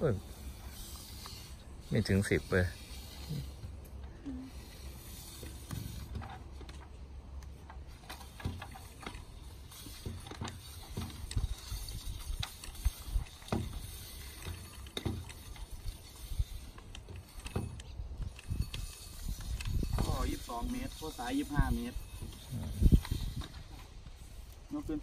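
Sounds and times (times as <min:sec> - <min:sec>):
pipe knocking and scraping in casing: 0:07.6 - 0:20.2.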